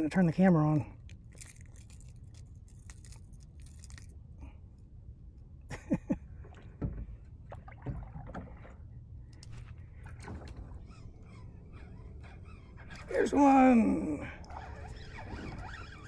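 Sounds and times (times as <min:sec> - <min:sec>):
wind and water rumble: 0:00.0 - 0:16.0
short squeaks: 0:09.5 - 0:16.0.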